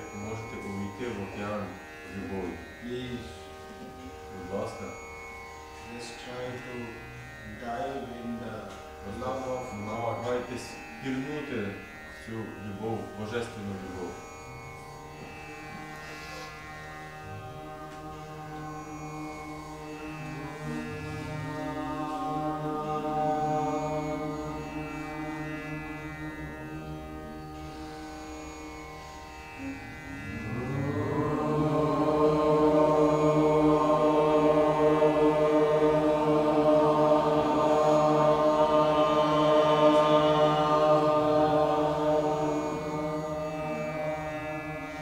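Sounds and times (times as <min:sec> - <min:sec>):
man chanting: 0:00.0 - 0:03.4, 0:05.8 - 0:14.3, 0:30.1 - 0:45.0
harmonium droning chords: 0:00.0 - 0:45.0.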